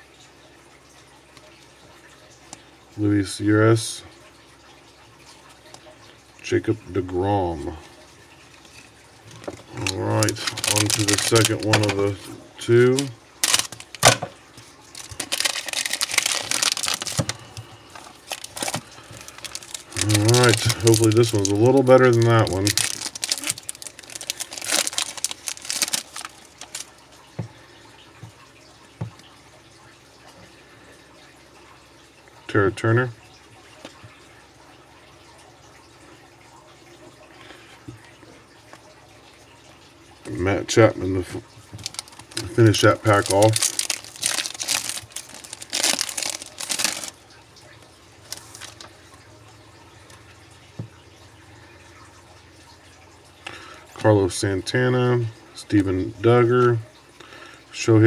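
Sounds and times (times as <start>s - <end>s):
wrapper tearing and crinkling: 9.7s - 12.0s, 13.0s - 14.2s, 14.9s - 26.9s, 41.8s - 47.2s, 48.2s - 48.9s.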